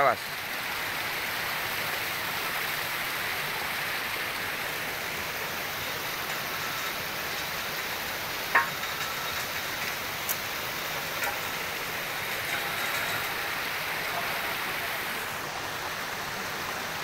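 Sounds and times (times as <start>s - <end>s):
flowing stream water: 0.0s - 17.0s.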